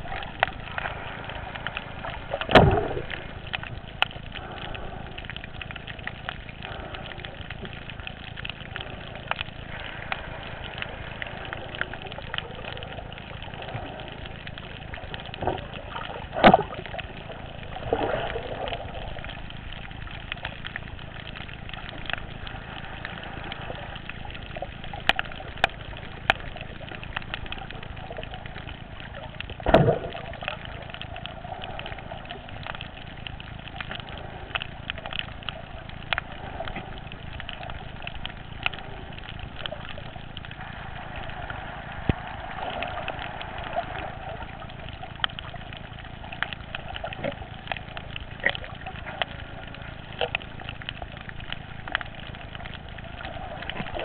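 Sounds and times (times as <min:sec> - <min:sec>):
underwater hiss: 0:00.0 - 0:05.9, 0:08.7 - 0:19.2, 0:40.6 - 0:45.2
fish crunching on coral: 0:00.0 - 0:54.0
underwater thumps: 0:02.3 - 0:04.8, 0:29.5 - 0:30.3.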